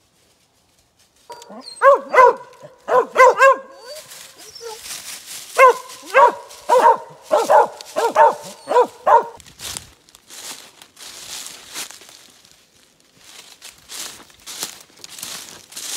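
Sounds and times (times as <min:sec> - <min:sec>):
leaves rustling underfoot: 0:00.0 - 0:15.9
dogs barking: 0:01.3 - 0:04.8, 0:05.6 - 0:09.4.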